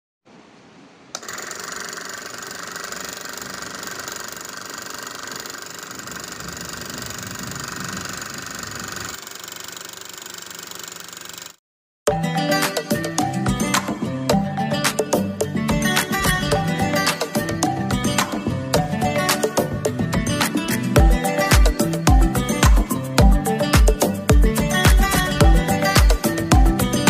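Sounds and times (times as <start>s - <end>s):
small motor driving air pump: 1.2s - 11.6s.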